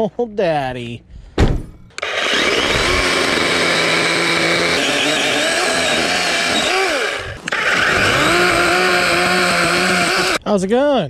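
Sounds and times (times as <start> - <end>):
chainsaw motor whine: 2.0 - 10.4.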